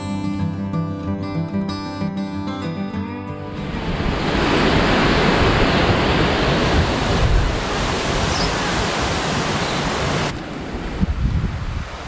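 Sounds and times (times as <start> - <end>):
strong gusty wind on microphone: 3.6 - 12.0.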